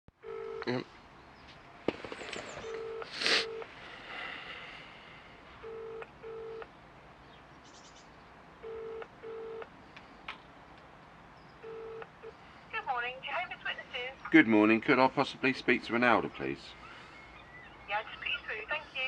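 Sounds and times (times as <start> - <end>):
telephone ringing tone beeps: 0.2 - 0.7, 2.6 - 3.7, 5.6 - 6.7, 8.6 - 9.7, 11.6 - 12.4
rustling: 1.9 - 3.7.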